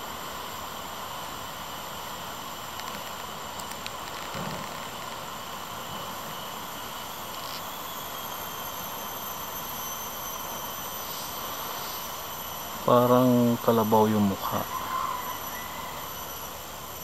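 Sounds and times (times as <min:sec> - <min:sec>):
outdoor background hiss: 0:00.0 - 0:17.0
faint clicks: 0:02.7 - 0:05.2.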